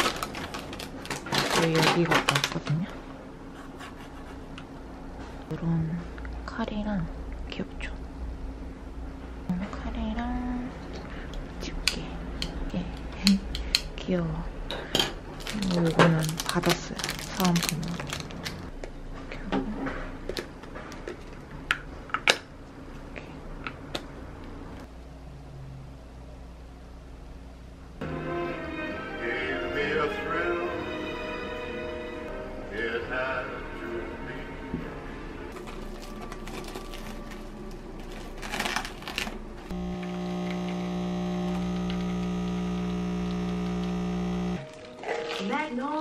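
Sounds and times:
steady low hum: 0.0s - 28.1s, 34.9s - 44.6s
coffee machine pump humming: 39.7s - 44.7s.

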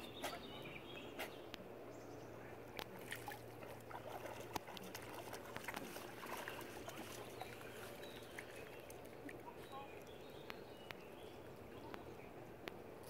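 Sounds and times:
dogs splashing in shallow water: 2.8s - 12.1s.

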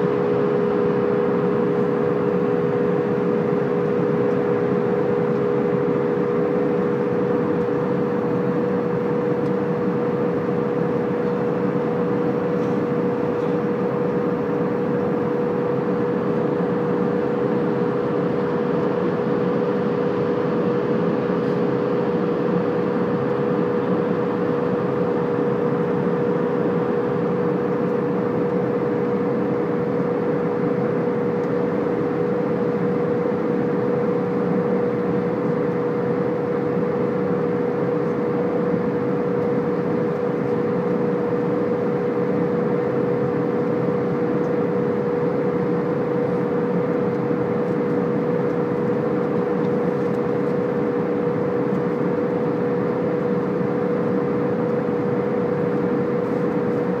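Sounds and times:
jet cabin engine and airflow noise: 0.0s - 57.0s.

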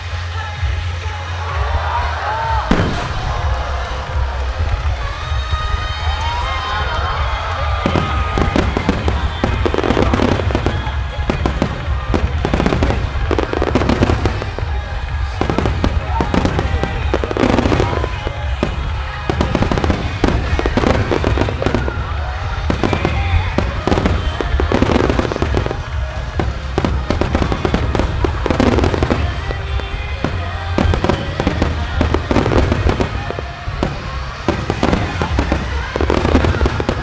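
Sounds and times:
fireworks bursting and crackling: 0.0s - 37.0s
music: 0.0s - 37.0s.

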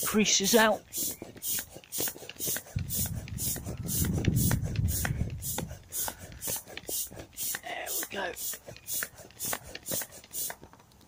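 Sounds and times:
hands rubbing inflated vinyl: 0.5s - 10.7s.

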